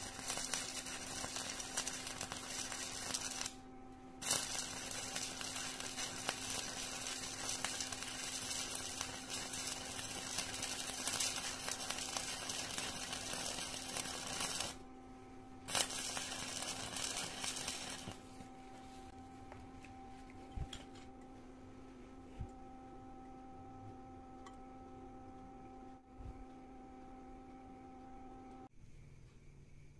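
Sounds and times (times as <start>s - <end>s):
welding arc crackling: 0.0s - 3.6s, 4.2s - 14.8s, 15.7s - 18.3s
low steady hum: 0.0s - 29.9s.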